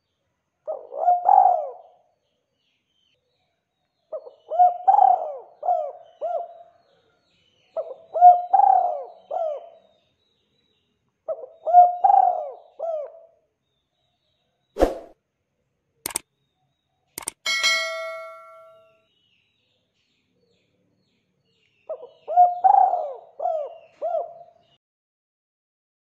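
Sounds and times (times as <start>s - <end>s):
dove cooing: 0.7s - 1.8s, 4.5s - 6.6s, 7.8s - 9.8s, 11.3s - 13.2s, 22.3s - 24.4s.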